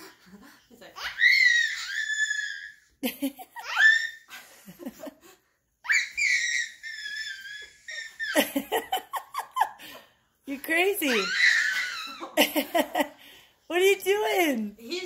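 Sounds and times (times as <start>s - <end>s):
infant squealing: 1.0s - 2.8s, 3.6s - 4.3s, 5.8s - 8.5s, 11.1s - 12.4s.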